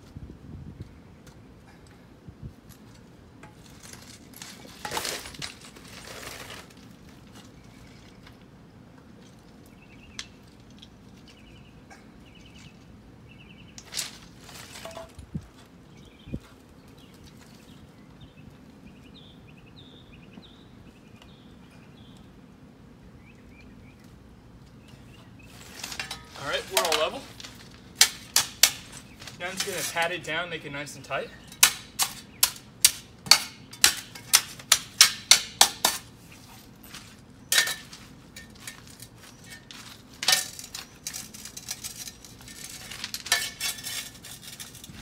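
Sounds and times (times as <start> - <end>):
songbirds chirping: 0.7 - 43.6
scuffing noises: 36.2 - 40.2.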